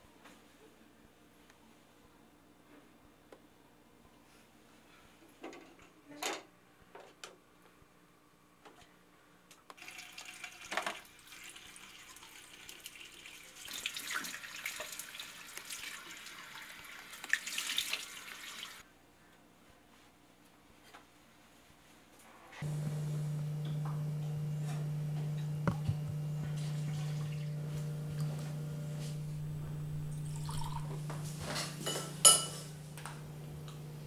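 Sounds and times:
tap water splashing into basin: 0:17.1 - 0:18.1.

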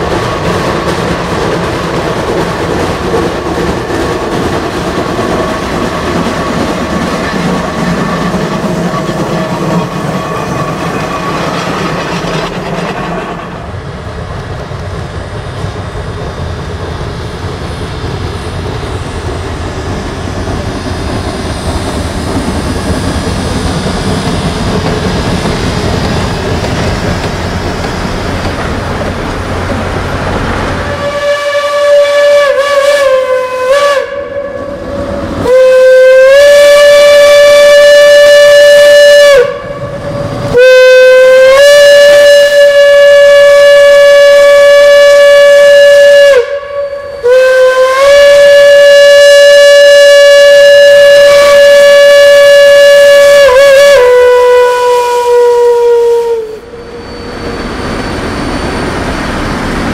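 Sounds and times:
steam locomotive exhaust: 0:00.0 - 0:59.9
steam whistle blasts: 0:30.8 - 0:59.1.

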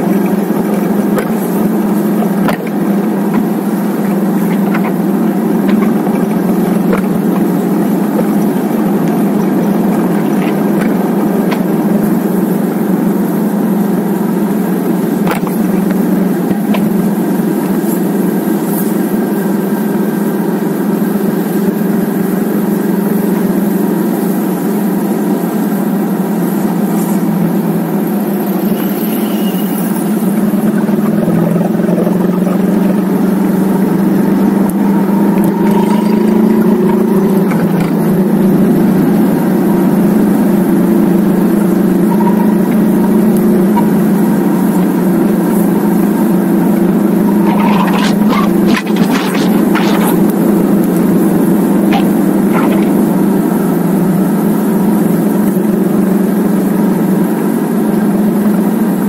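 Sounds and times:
wind and road noise: 0:00.0 - 0:19.1, 0:30.1 - 0:55.9
motorcycle engine running: 0:00.0 - 0:21.3, 0:30.1 - 0:56.2.

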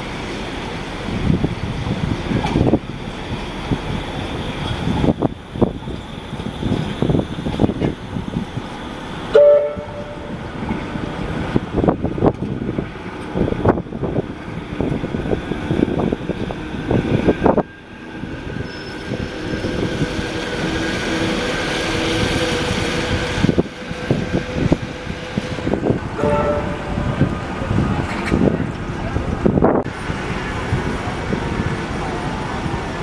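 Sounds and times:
rail vehicle running on track: 0:00.0 - 0:33.0
brief tone: 0:26.2 - 0:27.3.

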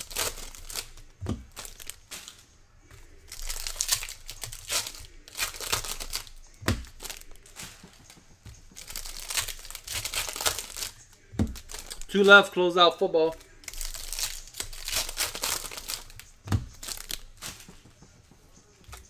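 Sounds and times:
foil wrapper tearing and crinkling: 0:00.0 - 0:02.4, 0:03.2 - 0:08.1, 0:08.7 - 0:12.3, 0:13.4 - 0:17.5
soft thumps: 0:01.2 - 0:03.0, 0:16.4 - 0:19.0.

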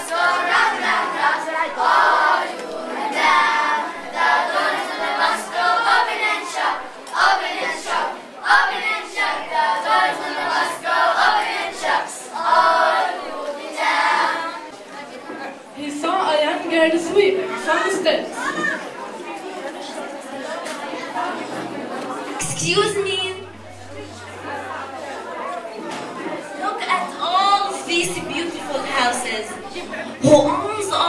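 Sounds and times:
boys singing in chorus: 0:00.0 - 0:14.7.

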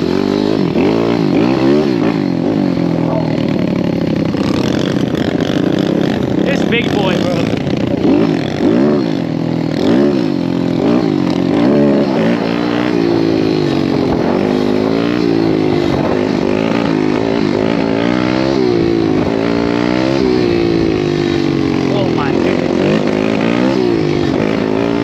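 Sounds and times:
motorbike engine revving hard: 0:00.0 - 0:25.0.

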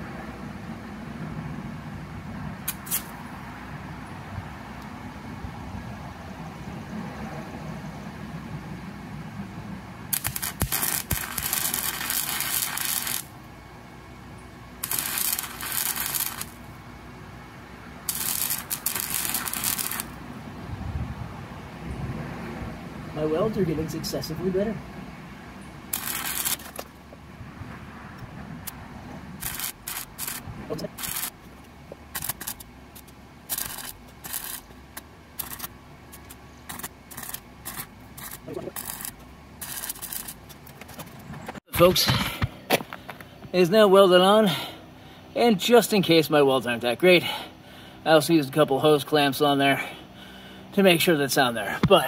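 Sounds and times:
sharp arc snaps: 0:02.6 - 0:03.2, 0:10.1 - 0:13.4, 0:14.8 - 0:16.7, 0:18.1 - 0:20.2, 0:25.9 - 0:27.0, 0:29.4 - 0:31.4, 0:32.1 - 0:40.6
welding arc crackling: 0:02.7 - 0:03.2, 0:10.1 - 0:13.4, 0:14.8 - 0:16.7, 0:18.0 - 0:20.2, 0:25.9 - 0:27.0, 0:29.4 - 0:40.7.

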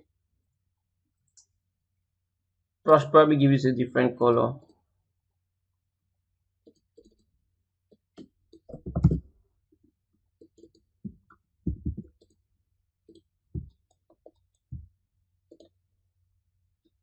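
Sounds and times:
computer mouse clicks: 0:06.6 - 0:07.3, 0:15.5 - 0:15.7.

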